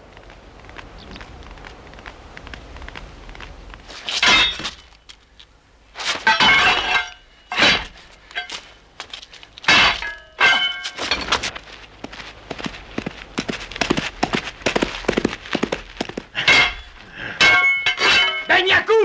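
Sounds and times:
sword blades clashing: 17.4s - 18.5s.

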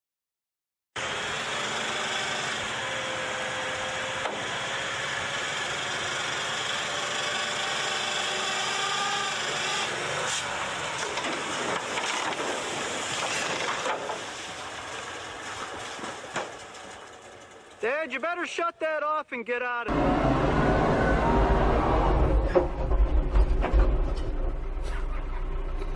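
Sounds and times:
dump truck engine running: 1.0s - 18.1s, 19.9s - 25.9s
knocks and scraping: 9.7s - 18.3s, 22.4s - 25.9s.

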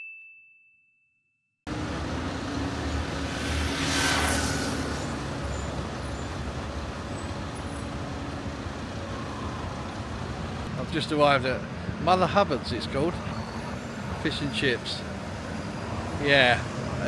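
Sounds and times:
vehicle passing: 1.7s - 10.8s
road traffic noise: 1.7s - 17.0s.

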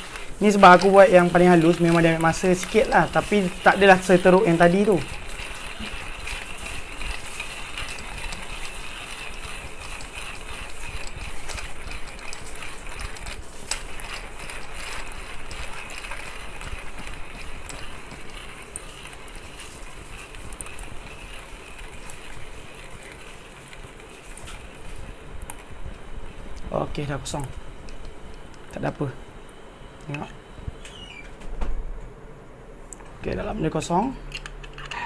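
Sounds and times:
hand coffee grinder crunching beans: 0.0s - 25.8s.

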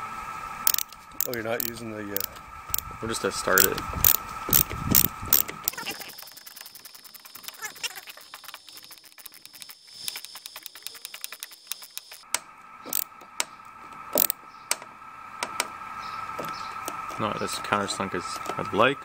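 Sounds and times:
steady hum: 0.0s - 19.0s
electric screwdriver whining: 0.7s - 2.8s, 3.6s - 12.3s, 12.9s - 13.2s, 14.2s - 14.4s
sharp clicks: 0.7s - 2.9s, 3.5s - 15.8s.

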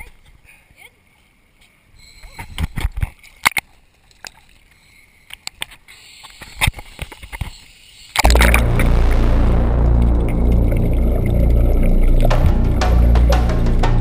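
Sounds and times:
music with deep bass: 8.2s - 14.0s.

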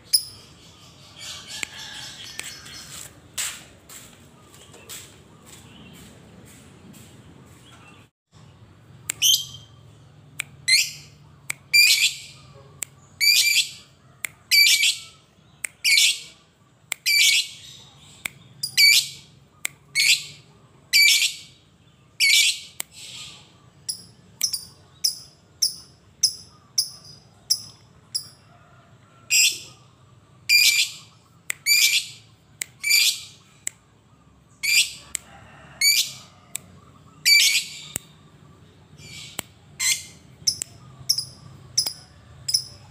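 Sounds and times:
lovebird chirps: 0.0s - 3.0s, 8.9s - 12.5s, 22.2s - 28.5s, 30.5s - 33.6s, 36.8s - 42.9s.

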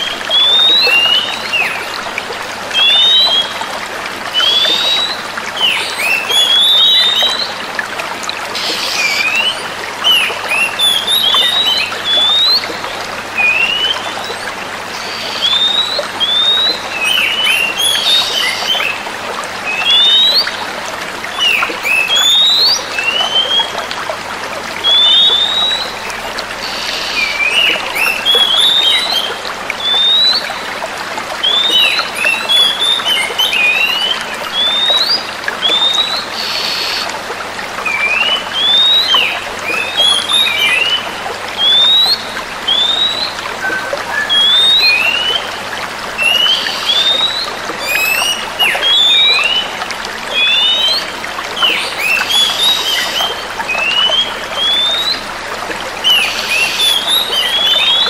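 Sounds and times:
birds whistling calls: 0.0s - 2.0s, 4.3s - 7.6s, 8.6s - 19.0s, 24.8s - 30.7s, 31.4s - 37.2s, 37.8s - 45.6s, 46.2s - 55.2s, 56.0s - 58.0s.

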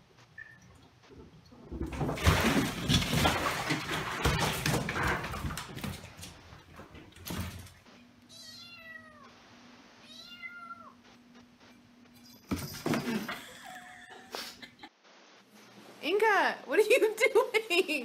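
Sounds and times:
water splashing and thrashing: 0.4s - 7.9s
kitten meowing: 8.3s - 9.3s, 10.1s - 11.0s.

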